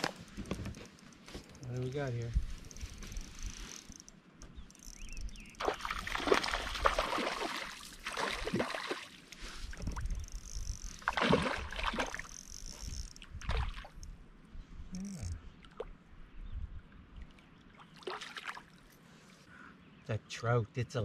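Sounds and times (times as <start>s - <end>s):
water splashing beside canoe: 5.6s - 9.3s, 11.0s - 12.3s, 17.7s - 18.9s.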